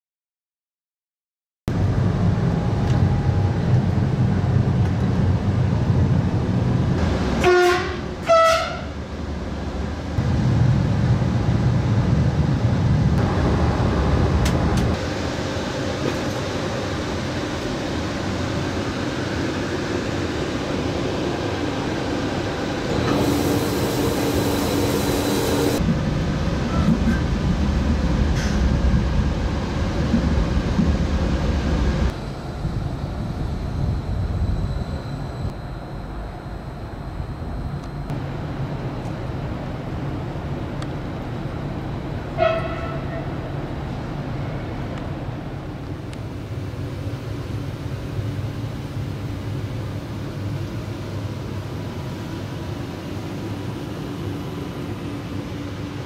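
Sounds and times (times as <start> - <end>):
train rumbling on track: 1.7 - 56.0
train horn blasts: 7.4 - 9.0, 42.3 - 43.4.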